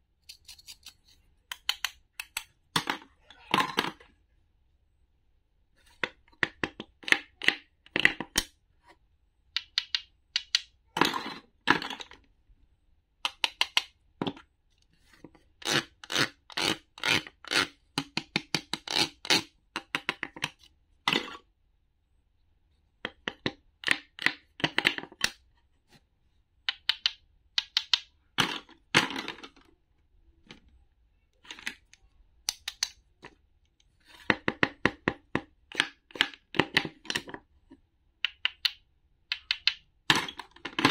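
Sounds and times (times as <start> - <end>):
wooden toy knife clicking on board: 26.7 - 28.1, 38.2 - 39.8.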